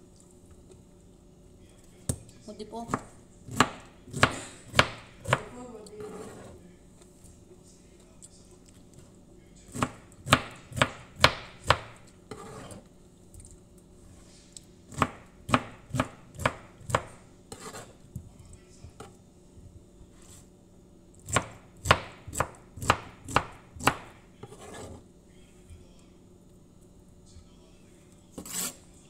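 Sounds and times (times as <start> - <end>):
knife chopping on cutting board: 2.9 - 6.6, 9.7 - 12.8, 14.9 - 18.3, 21.2 - 25.0, 28.4 - 28.8.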